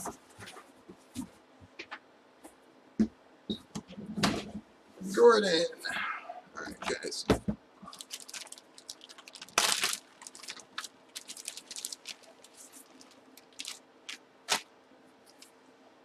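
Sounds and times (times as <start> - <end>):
plastic bags crinkling: 7.8 - 14.7.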